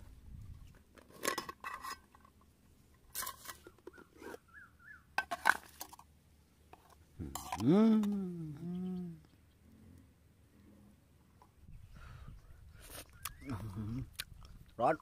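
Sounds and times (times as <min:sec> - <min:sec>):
metal clinking and scraping: 0:00.8 - 0:04.4.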